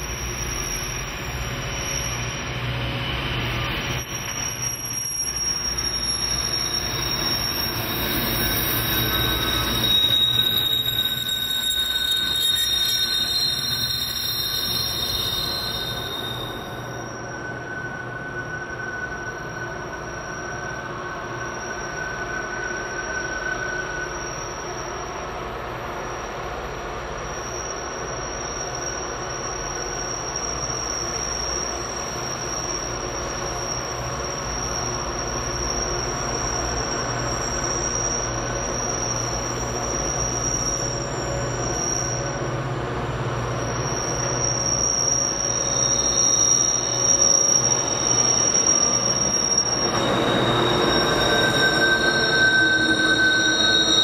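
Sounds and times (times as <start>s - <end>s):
wheel flanges squealing: 0.0s - 25.4s, 27.2s - 54.0s
diesel locomotive engine drone: 0.0s - 54.0s
locomotive passing close: 47.6s - 54.0s.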